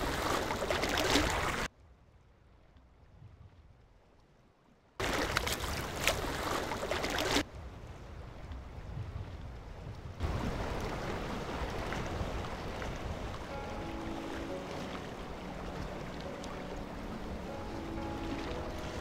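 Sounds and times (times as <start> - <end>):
waves on open water: 0.0 - 1.8, 2.5 - 19.0
rush of wind: 7.4 - 19.0
wind buffeting microphone: 7.4 - 19.0.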